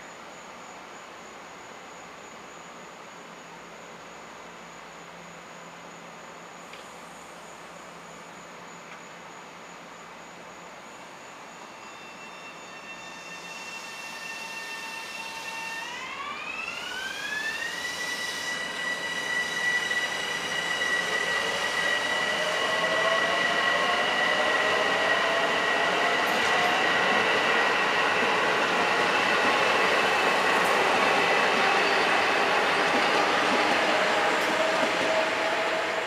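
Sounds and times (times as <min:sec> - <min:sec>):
electric train motors whining: 0:11.8 - 0:36.0.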